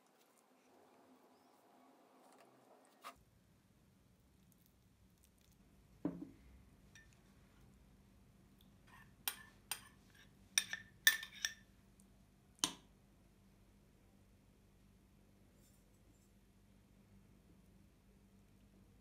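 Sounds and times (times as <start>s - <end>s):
metal spoon clinking on glass bowl: 10.6s - 11.6s.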